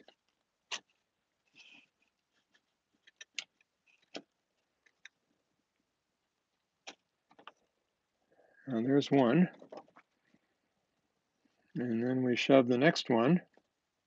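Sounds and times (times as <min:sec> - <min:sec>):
soft rustle: 0:00.0 - 0:06.7
small plastic clicks and taps: 0:06.8 - 0:07.7.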